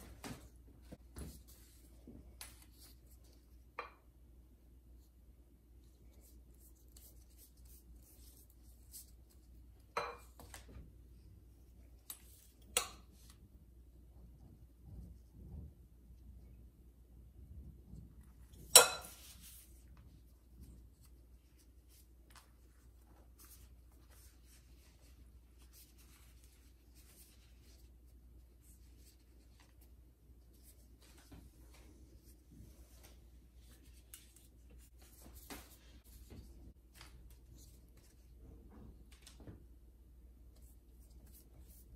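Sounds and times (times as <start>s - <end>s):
pastry brush swishing on dough: 19.0s - 36.7s.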